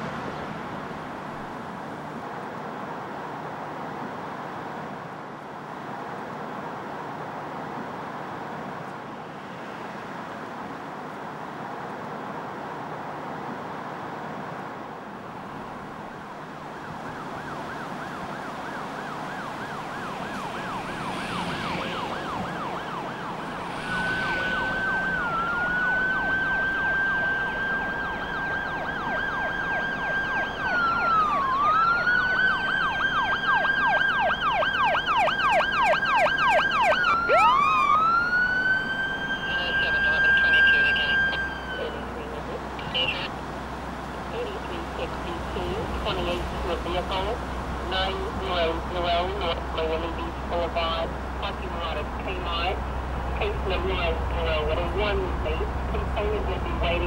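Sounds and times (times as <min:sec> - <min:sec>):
traffic hum: 0:00.0 - 0:57.0
siren wailing: 0:16.1 - 0:43.3
siren yelping: 0:16.8 - 0:43.3.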